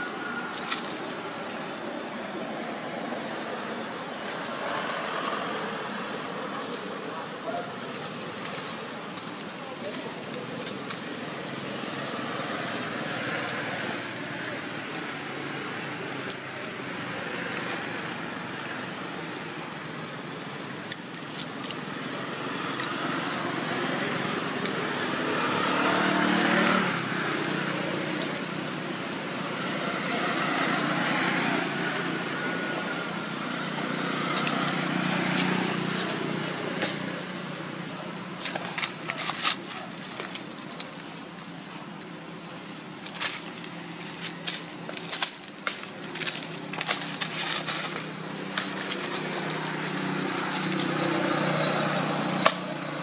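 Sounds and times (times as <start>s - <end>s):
dry leaves crackling: 0.0s - 52.8s
distant road traffic: 0.0s - 53.0s.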